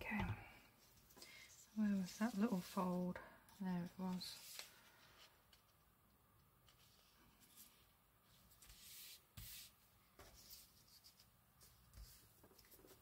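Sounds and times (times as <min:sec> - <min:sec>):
paper and ribbon rustling: 0:01.7 - 0:05.6.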